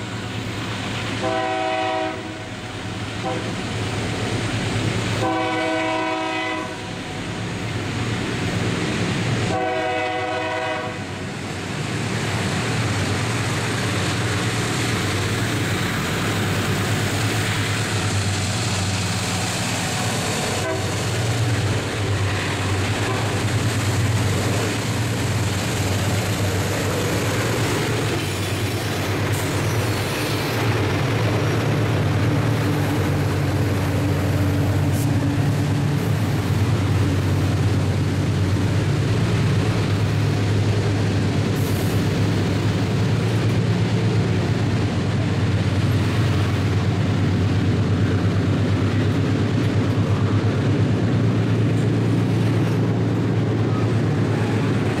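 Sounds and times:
freight wagon wheels on rail: 0.0s - 55.0s
locomotive engine rumble: 0.0s - 55.0s
locomotive horn blasts: 1.2s - 2.5s, 3.2s - 3.6s, 5.2s - 6.9s, 9.5s - 11.1s, 20.6s - 21.0s.

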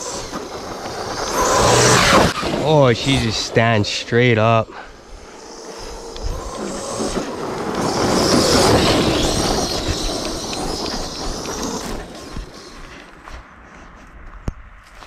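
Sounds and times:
rc truck motor whining: 0.0s - 4.0s, 4.6s - 13.3s
tyres throwing dirt: 4.8s - 13.3s.

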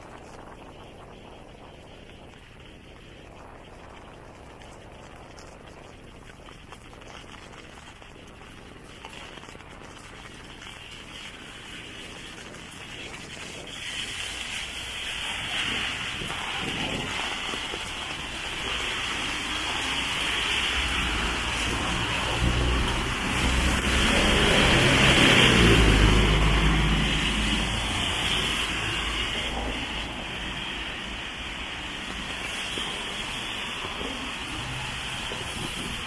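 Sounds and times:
rain falling on street: 0.0s - 36.0s
bus driving past on wet road: 13.9s - 36.0s.

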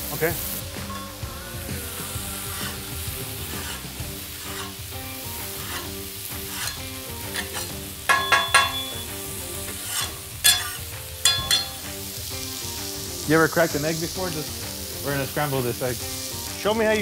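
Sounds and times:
meat sizzling on grill: 0.0s - 17.0s
ringing metal clinks: 0.9s - 1.2s, 7.4s - 9.4s, 10.0s - 11.9s
metal spatulas scraping and tapping: 3.5s - 4.8s, 5.6s - 11.9s.

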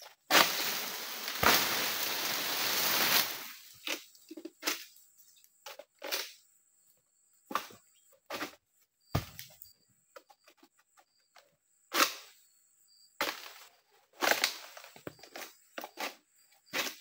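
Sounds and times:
palm fronds rustling: 0.0s - 4.0s
sickle knocking and scraping palm: 0.0s - 4.9s, 7.5s - 8.6s.

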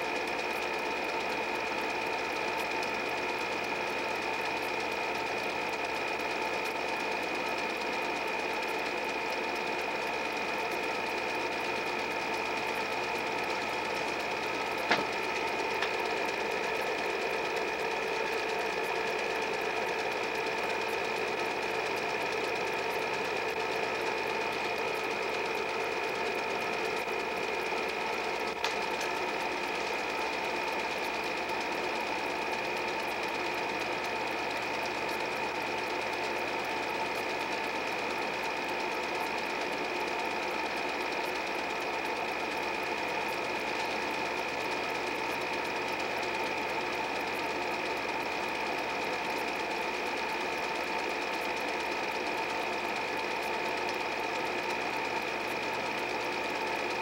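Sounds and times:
film projector whirring: 0.0s - 57.0s
film transport clatter: 14.6s - 17.0s, 28.0s - 31.3s.

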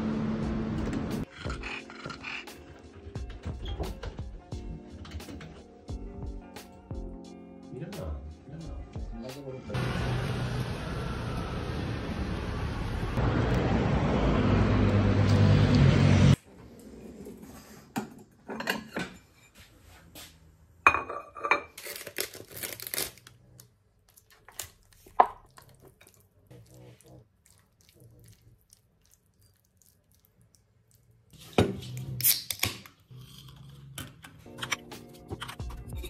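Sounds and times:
ceramic plates clinking: 18.4s - 19.4s.

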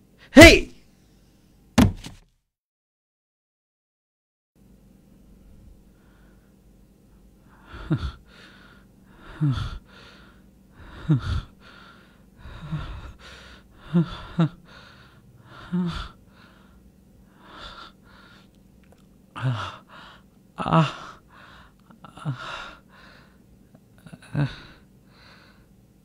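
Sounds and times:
man gasping breaths: 7.5s - 18.6s, 19.4s - 23.4s, 24.0s - 25.8s.

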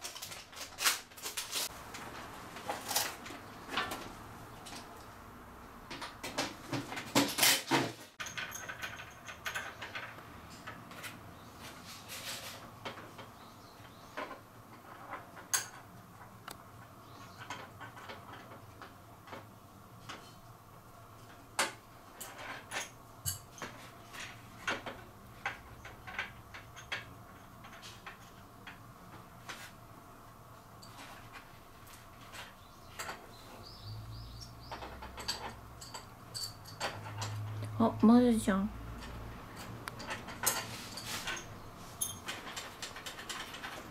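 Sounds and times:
tools knocking and clattering: 5.9s - 11.2s, 12.8s - 20.4s, 21.2s - 29.3s, 30.8s - 33.4s, 34.6s - 37.6s, 38.9s - 43.9s.

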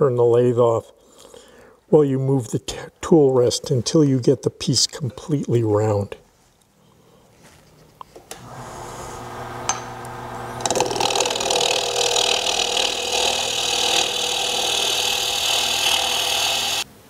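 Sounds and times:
lathe motor humming: 8.4s - 16.8s
gouge cutting wood hissing: 8.4s - 16.9s.

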